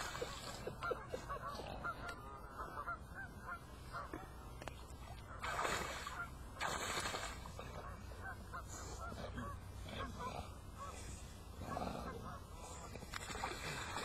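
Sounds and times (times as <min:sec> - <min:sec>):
water splashing: 0:00.0 - 0:00.9, 0:05.2 - 0:07.9, 0:13.0 - 0:14.0.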